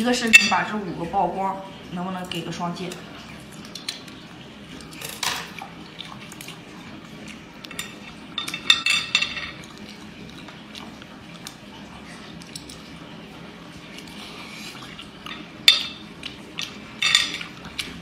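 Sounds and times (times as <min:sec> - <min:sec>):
wet sticky chewing: 0:09.6 - 0:13.0, 0:13.8 - 0:15.3.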